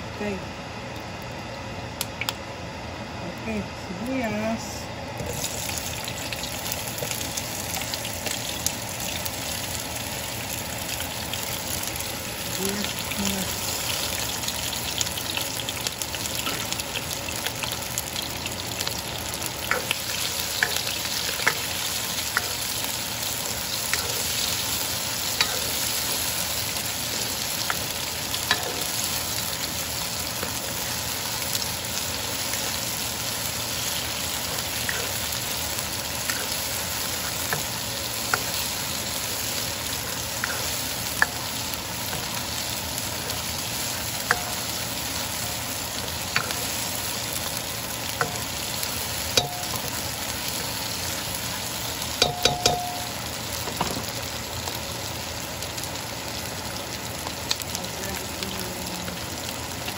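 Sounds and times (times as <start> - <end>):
onions sizzling in oil: 3.5 - 59.9
spatula tapping and scraping pan: 52.2 - 53.0.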